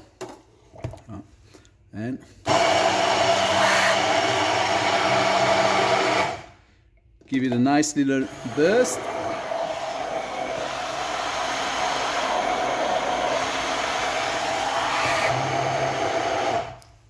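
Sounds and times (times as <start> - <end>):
stick blender motor running: 2.4 - 6.5, 8.1 - 16.9.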